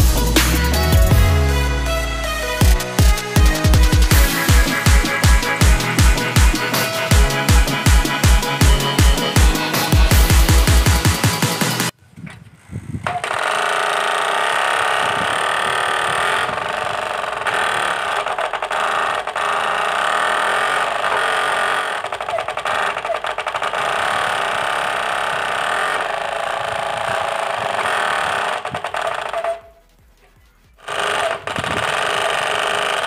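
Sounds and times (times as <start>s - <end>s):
bicycle spokes rattling plastic bottle: 13.1s - 33.0s.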